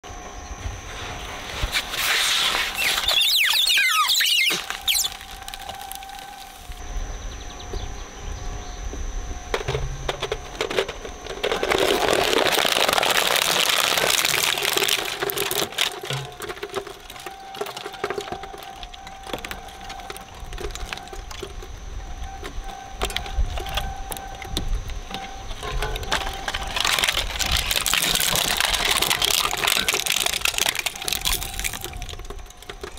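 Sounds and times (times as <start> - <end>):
shredder humming: 0.3 - 32.9
dense tearing crunch: 1.7 - 6.8, 11.7 - 16.0, 26.5 - 32.1
plastic cracking and snapping: 2.8 - 6.8, 10.6 - 21.7, 25.5 - 32.9.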